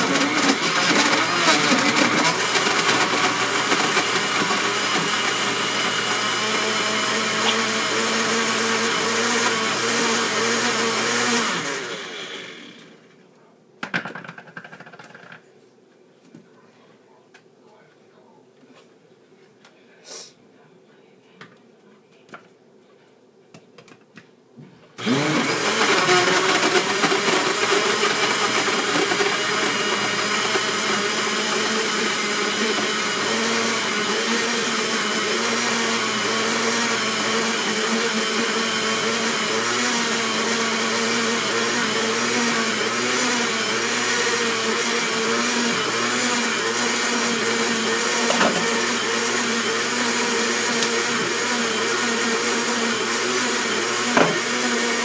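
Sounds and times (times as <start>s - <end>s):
blender motor running: 0.0s - 13.0s, 25.0s - 55.0s.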